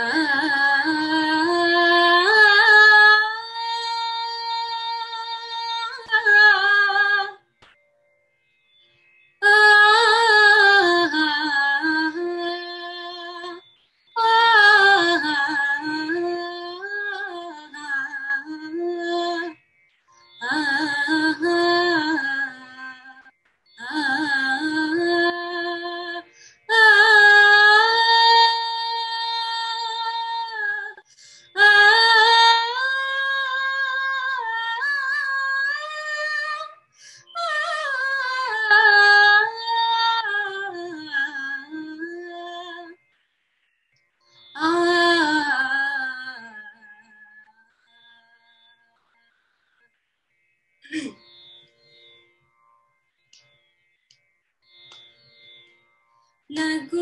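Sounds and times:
woman singing unaccompanied: 0:00.0 - 0:07.4, 0:09.4 - 0:19.6, 0:20.4 - 0:43.0, 0:44.6 - 0:47.6, 0:56.5 - 0:57.0.

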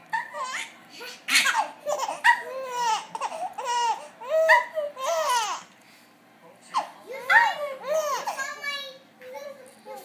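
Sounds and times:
baby laughing: 0:00.0 - 0:05.6, 0:06.7 - 0:08.7.

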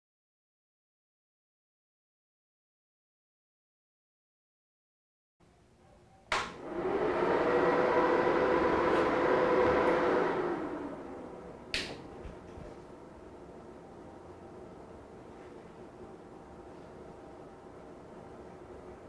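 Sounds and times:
cooling fan rushing: 0:06.5 - 0:19.0
faint steady hum: 0:10.0 - 0:19.0.

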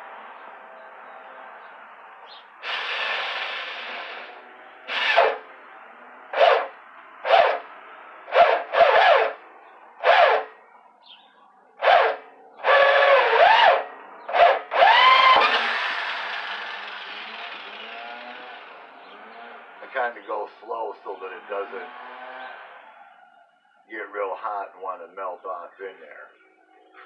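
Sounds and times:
drill with hole saw cutting: 0:02.6 - 0:05.5, 0:06.3 - 0:07.7, 0:08.3 - 0:09.4, 0:10.0 - 0:10.5, 0:11.8 - 0:18.8.

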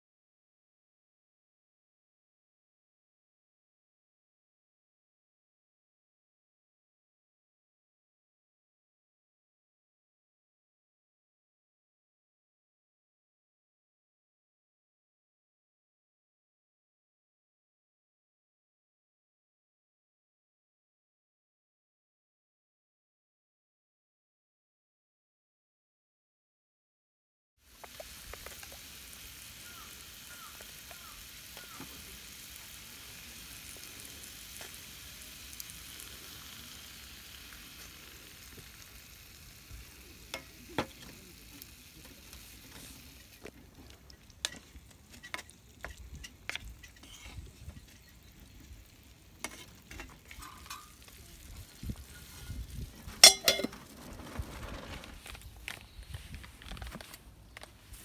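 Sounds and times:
meat sizzling in a skillet: 0:27.6 - 0:54.0
wooden spatula scraping a pan: 0:42.7 - 0:48.1, 0:49.4 - 0:51.2
metal lid clanking onto skillet: 0:49.4 - 0:51.1, 0:53.2 - 0:53.8.

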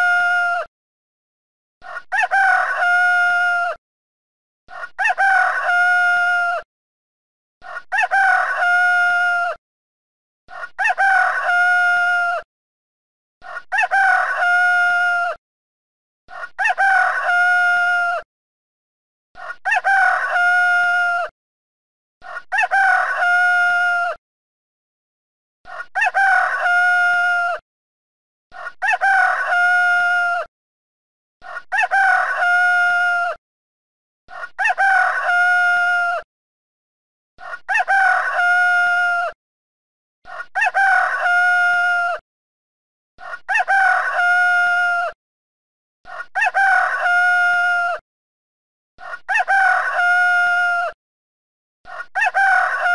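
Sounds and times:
rooster crowing: 0:01.8 - 0:03.8, 0:04.7 - 0:06.6, 0:07.7 - 0:09.6, 0:10.6 - 0:12.4, 0:13.5 - 0:15.4, 0:16.4 - 0:18.2, 0:19.6 - 0:21.3, 0:22.3 - 0:24.2, 0:25.7 - 0:27.6, 0:28.6 - 0:30.5, 0:31.5 - 0:33.4, 0:34.4 - 0:36.2, 0:37.5 - 0:39.4, 0:40.3 - 0:42.2, 0:43.3 - 0:45.2, 0:46.1 - 0:48.0, 0:49.1 - 0:51.0, 0:51.9 - 0:52.9.

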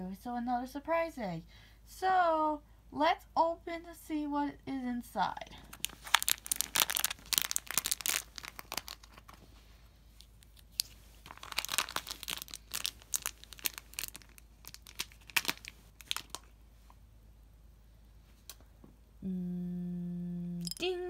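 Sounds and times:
foil wrapper crinkling and tearing: 0:05.6 - 0:09.4, 0:10.2 - 0:16.5.

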